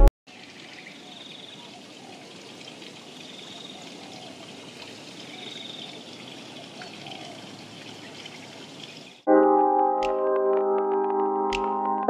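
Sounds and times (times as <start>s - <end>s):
steady rush of water: 0.3s - 9.3s.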